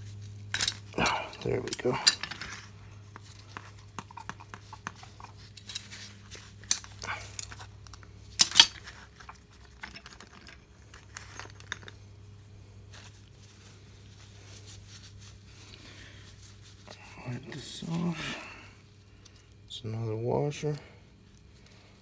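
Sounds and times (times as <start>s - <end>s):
faint steady hum: 0.0s - 22.0s
metal parts clinking on workbench: 0.5s - 2.7s, 6.6s - 12.0s.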